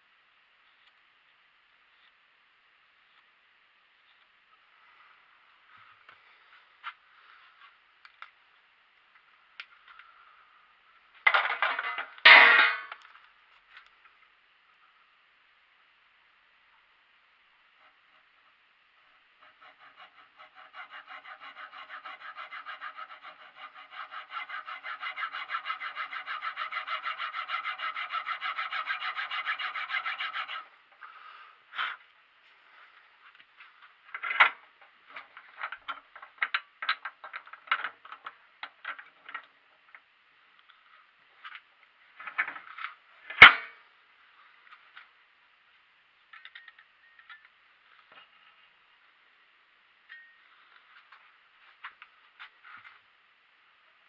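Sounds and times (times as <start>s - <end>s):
hand tool rasping: 19.4s - 30.7s
tools clicking and knocking: 46.3s - 47.5s.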